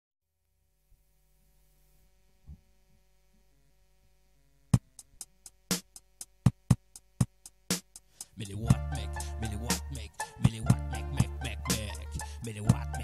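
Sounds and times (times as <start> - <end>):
sharp drum machine hits: 4.8 - 13.0.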